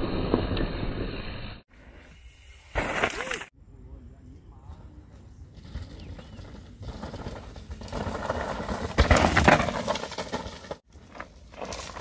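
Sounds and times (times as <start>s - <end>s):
bike tyres skidding on gravel: 1.8s - 3.5s, 5.2s - 12.0s.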